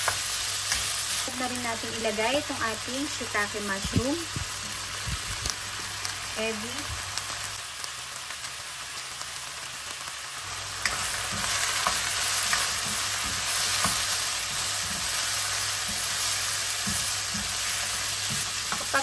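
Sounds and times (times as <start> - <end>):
food sizzling in a wok: 0.0 - 19.0
spatula scraping and tapping pan: 10.8 - 19.0.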